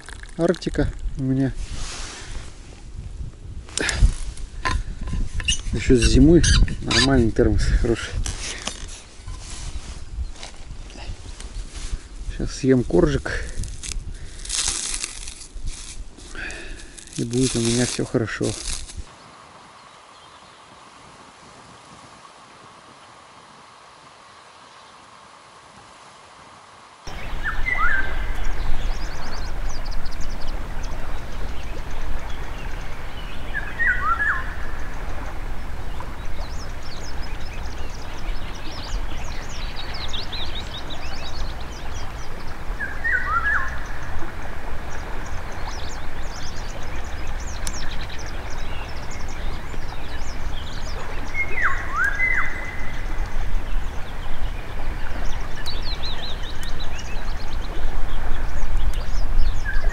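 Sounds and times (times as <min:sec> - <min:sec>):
small birds chirping: 0:03.8 - 0:07.2, 0:12.4 - 0:20.8, 0:27.1 - 0:59.9.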